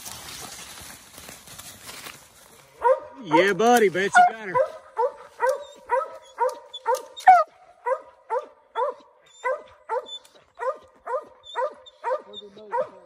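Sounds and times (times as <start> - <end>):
dog barking: 2.8 - 3.5, 4.1 - 13.0.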